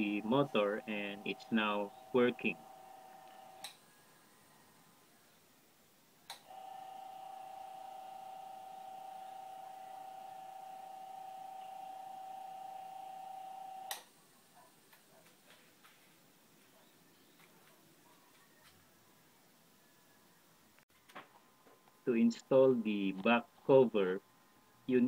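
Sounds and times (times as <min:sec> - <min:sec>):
electric fan motor whining: 0:00.0 - 0:03.8, 0:06.3 - 0:14.0.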